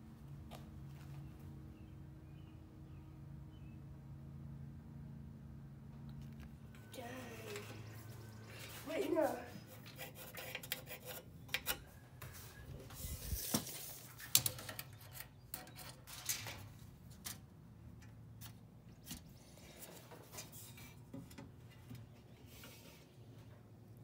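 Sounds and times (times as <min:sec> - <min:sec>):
pencil and tape measure tapping metal: 0:09.7 - 0:11.8.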